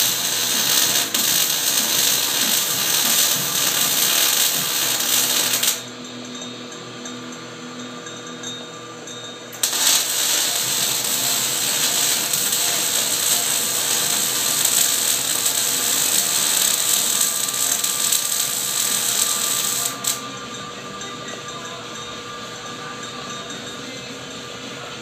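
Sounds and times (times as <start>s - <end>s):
metal lathe cutting threads: 0.0s - 5.9s, 9.6s - 20.3s.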